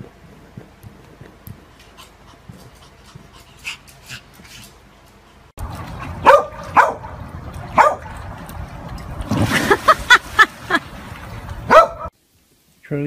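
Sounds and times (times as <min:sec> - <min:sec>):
large dog barking: 0:06.2 - 0:08.1, 0:11.7 - 0:12.1
heavy splash into pool water: 0:09.2 - 0:11.7.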